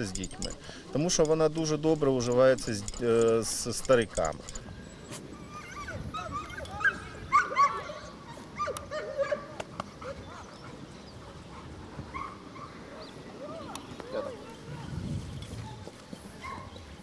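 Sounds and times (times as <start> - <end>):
dogs yelping and whining: 2.3 - 11.0.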